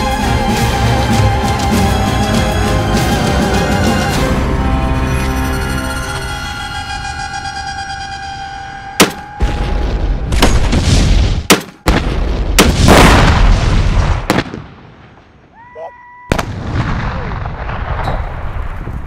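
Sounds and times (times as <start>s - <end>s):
explosion booms: 9.4s - 15.2s, 16.3s - 19.0s.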